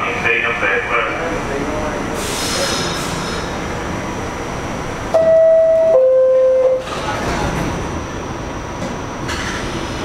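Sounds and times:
train standing noise: 2.1s - 4.0s, 5.1s - 8.0s, 8.8s - 10.0s.

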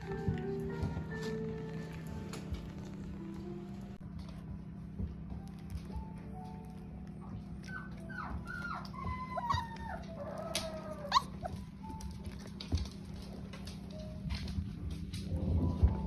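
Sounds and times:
puppies whimpering: 7.5s - 12.5s.

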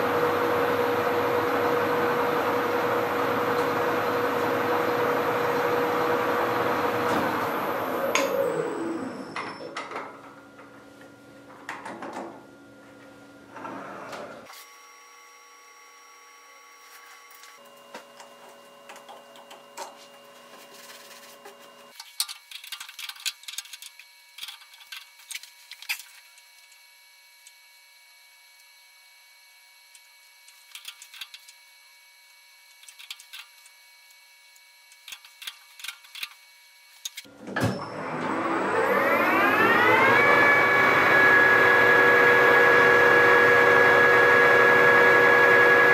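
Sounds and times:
machine motor whining: 0.0s - 9.8s, 37.7s - 45.9s.

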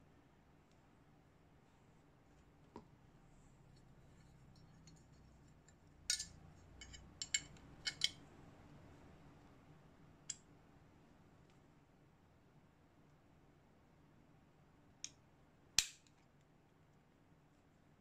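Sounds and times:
metal parts clicking: 4.5s - 8.2s.

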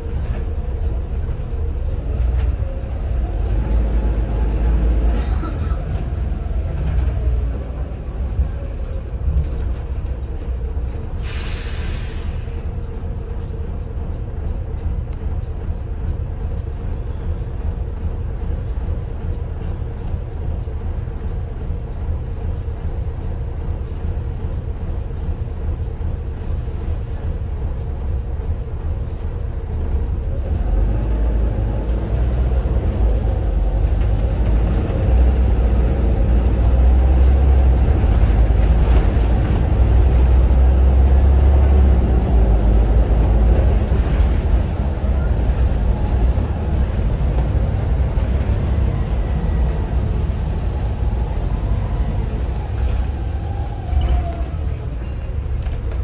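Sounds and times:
bus diesel engine rumbling: 0.0s - 56.0s
air brake hiss: 11.2s - 12.7s.

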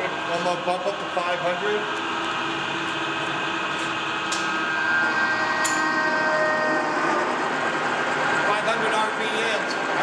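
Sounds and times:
gear whine: 1.8s - 10.0s.

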